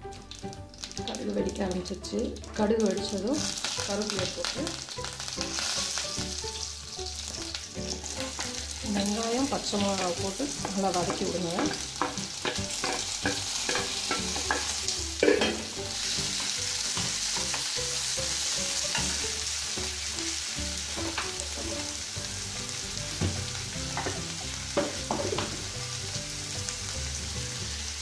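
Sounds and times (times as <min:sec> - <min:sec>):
onions sizzling in hot oil: 0:00.0 - 0:28.0
spatula scraping a pan: 0:10.0 - 0:19.4.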